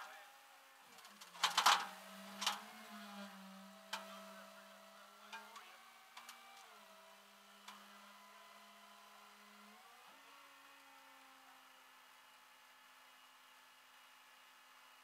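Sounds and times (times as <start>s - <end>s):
truck engine hum: 0.9s - 12.2s.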